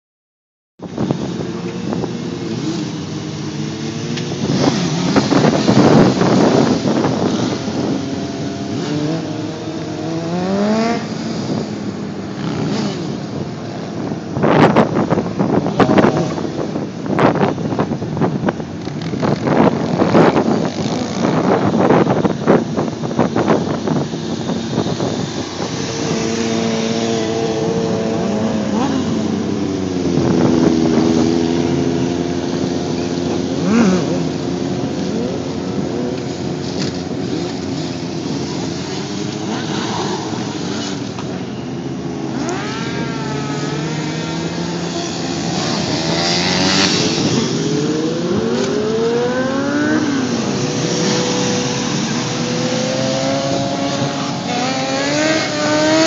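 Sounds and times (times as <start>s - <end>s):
wind buffeting microphone: 0.8s - 38.2s
motorcycle engines revving: 0.8s - 56.0s.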